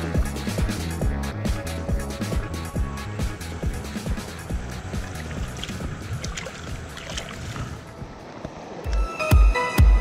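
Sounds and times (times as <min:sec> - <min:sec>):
hands splashing in shallow water: 0:04.9 - 0:07.8.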